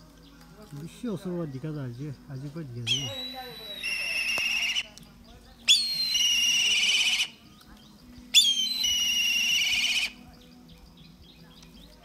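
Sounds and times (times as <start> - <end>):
eagle calling with quavering trill: 2.2 - 7.6, 8.2 - 11.9.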